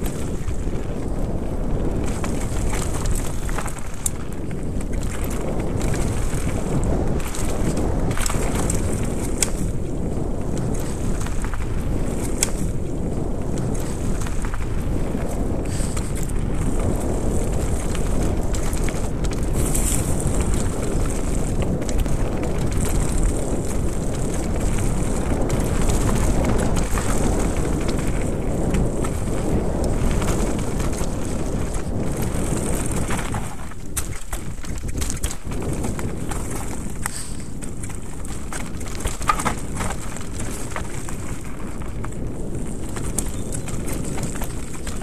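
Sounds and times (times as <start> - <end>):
bike rattling and knocking: 0.0 - 45.0
wind rumble on microphone: 0.0 - 45.0
tyres on dirt and leaves: 13.4 - 34.4, 35.4 - 45.0.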